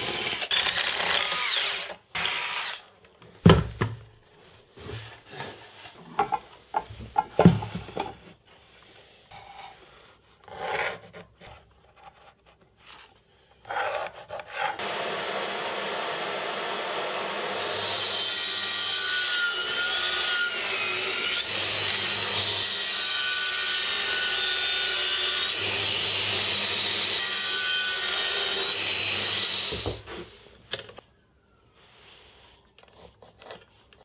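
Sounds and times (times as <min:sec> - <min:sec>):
table saw cutting plywood: 0:00.0 - 0:02.8, 0:13.9 - 0:30.2.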